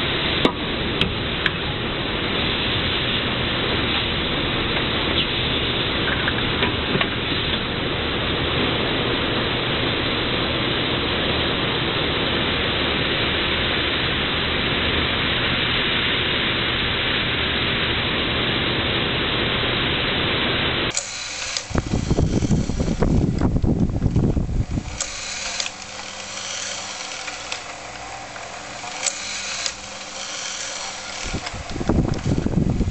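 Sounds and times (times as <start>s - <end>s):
injection molding machine running: 20.9s - 32.9s
mold mechanism clicking and whirring: 20.9s - 32.9s.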